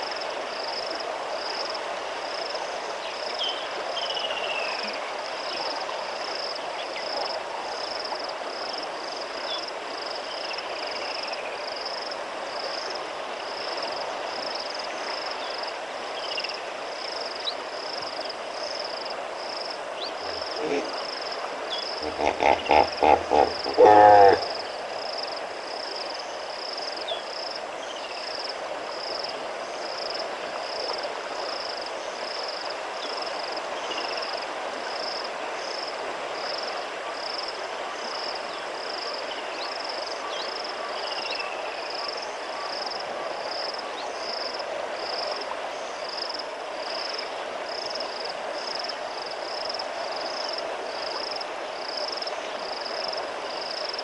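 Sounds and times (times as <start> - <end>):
even hiss: 19.4 - 25.8
high pulsing creature call: 20.3 - 21.0, 22.0 - 24.6.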